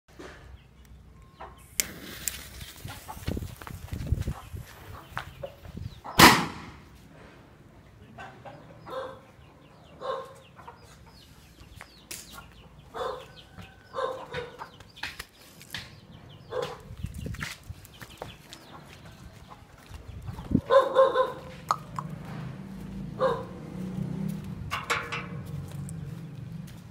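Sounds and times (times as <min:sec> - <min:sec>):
chickens clucking: 0:01.2 - 0:01.8, 0:02.8 - 0:06.2, 0:07.9 - 0:15.2, 0:17.9 - 0:22.5
firework rocket launching: 0:01.7 - 0:03.1, 0:06.2 - 0:06.9.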